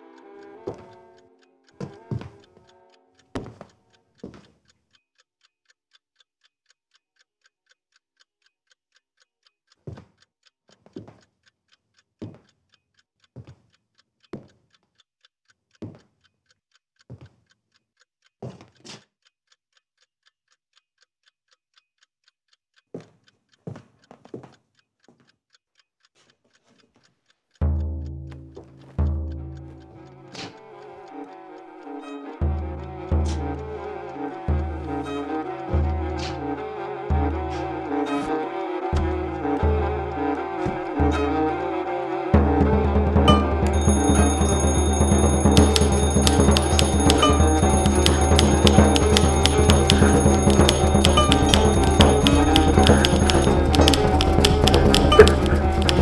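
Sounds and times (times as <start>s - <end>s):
clock ticking fast: 0.0s - 56.0s
heavy footsteps on wooden floor: 2.1s - 2.4s
music: 27.6s - 56.0s.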